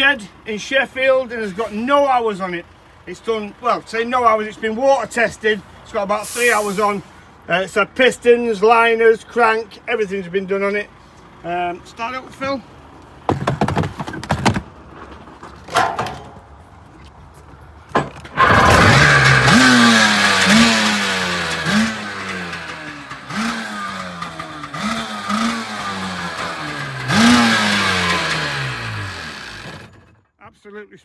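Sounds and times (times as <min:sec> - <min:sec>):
two-stroke engine revving: 0:18.3 - 0:30.1.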